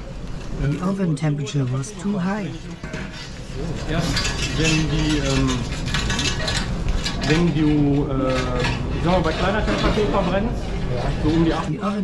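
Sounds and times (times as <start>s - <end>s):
iron rake scraping furnace grate: 2.6s - 10.4s.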